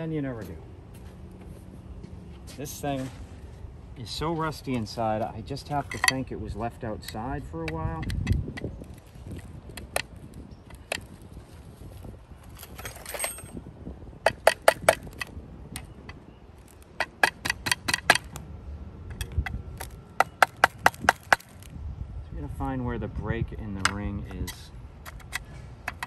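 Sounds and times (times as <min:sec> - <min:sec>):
screwdriver scraping metal ring: 0:12.5 - 0:13.6
sharp metal taps: 0:17.0 - 0:18.4.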